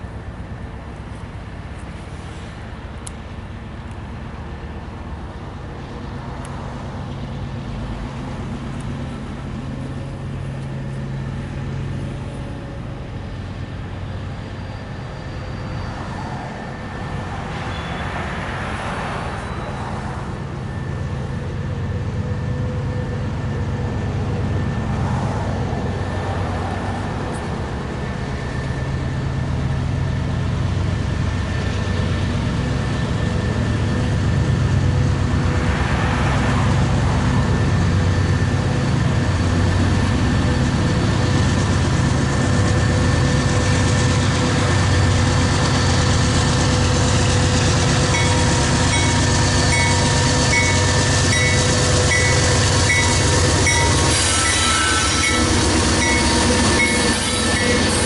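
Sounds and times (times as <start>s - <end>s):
diesel locomotive engine drone: 0.0s - 58.0s
train wheels on rails: 0.0s - 58.0s.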